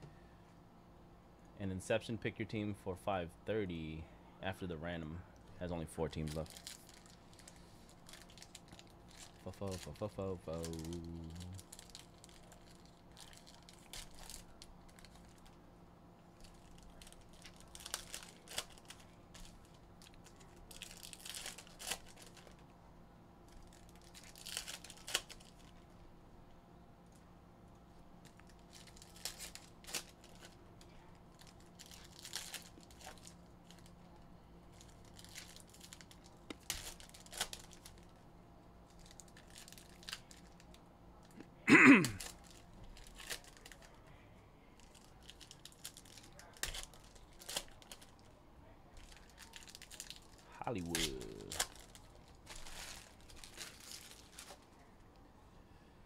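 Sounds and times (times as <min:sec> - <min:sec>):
foil wrappers tearing and crinkling: 0:06.2 - 0:15.5, 0:16.4 - 0:22.6, 0:23.5 - 0:25.8, 0:28.3 - 0:30.6, 0:31.3 - 0:33.9, 0:34.7 - 0:38.2, 0:38.9 - 0:40.7, 0:42.0 - 0:44.0, 0:44.8 - 0:48.3, 0:49.0 - 0:54.7.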